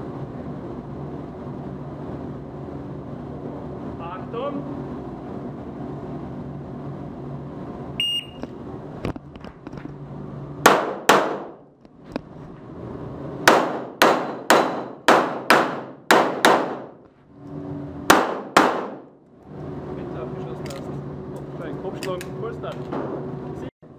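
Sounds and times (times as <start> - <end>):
short electronic beep: 8.0 - 8.4
pistol shots with echo: 10.7 - 11.6, 13.5 - 16.9, 18.1 - 19.1.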